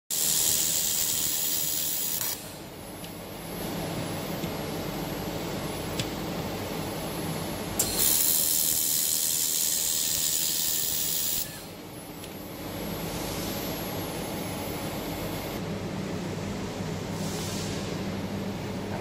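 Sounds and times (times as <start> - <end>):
laser welder hissing: 0.1 - 2.6, 7.8 - 11.7
steady machine hum: 0.2 - 19.0.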